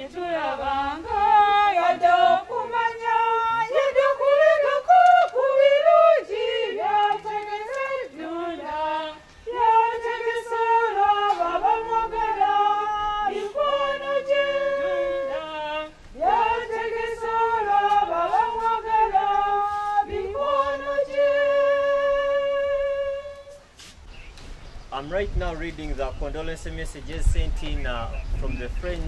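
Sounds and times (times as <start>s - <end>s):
choir singing a hymn: 0.0s - 23.6s.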